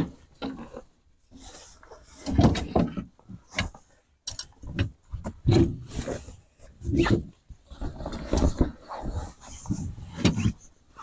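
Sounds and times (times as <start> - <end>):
tent poles knocking and clattering: 7.7 - 10.6.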